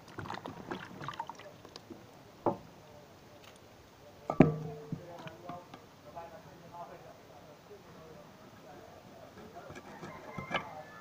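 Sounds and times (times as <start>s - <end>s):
metal cookware clanging: 4.3s - 4.9s.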